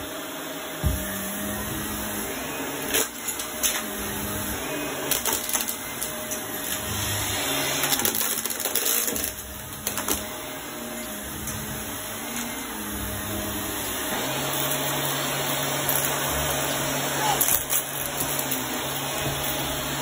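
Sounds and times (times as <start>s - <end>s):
vacuum cleaner motor drone: 0.0s - 20.0s
debris clicking in vacuum: 7.8s - 10.2s.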